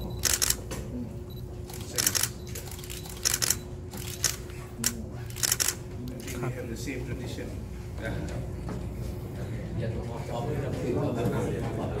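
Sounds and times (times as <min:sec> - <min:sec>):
steady hum: 0:00.0 - 0:12.0
camera shutters clicking: 0:00.2 - 0:00.7, 0:01.7 - 0:06.3.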